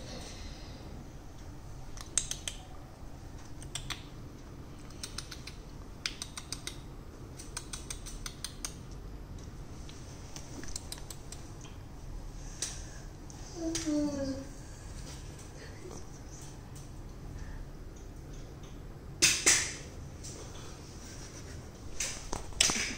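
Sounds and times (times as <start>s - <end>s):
low room hum: 0.0s - 22.9s
kitten claws clicking on tiles: 1.9s - 2.8s, 3.4s - 4.2s, 4.8s - 9.5s, 10.4s - 11.8s.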